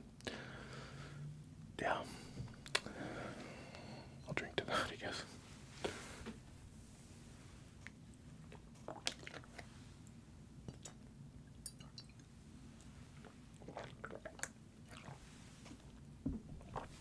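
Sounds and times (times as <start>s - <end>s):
man drinking and swallowing: 8.5s - 9.6s, 13.2s - 17.0s.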